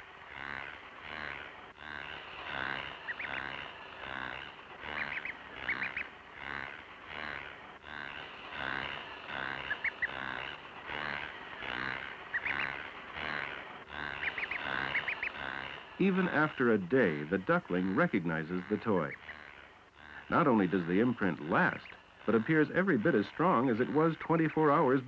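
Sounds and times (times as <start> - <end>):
ducklings peeping: 0.0 - 25.0.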